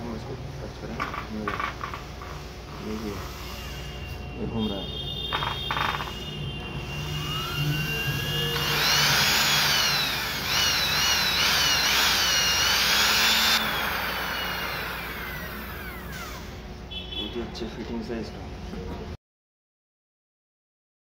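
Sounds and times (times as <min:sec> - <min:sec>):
drill motor whine: 0:03.0 - 0:04.5, 0:05.4 - 0:16.6.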